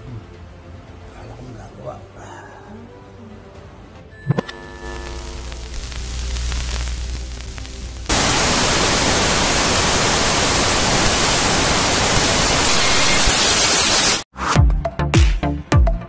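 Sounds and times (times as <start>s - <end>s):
television static hiss: 4.8s - 14.2s
electronic dance music: 12.0s - 14.2s.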